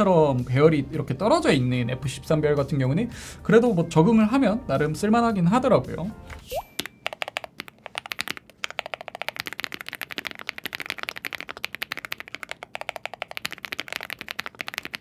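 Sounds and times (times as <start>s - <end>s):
fast mechanical keyboard typing: 6.8s - 15.0s.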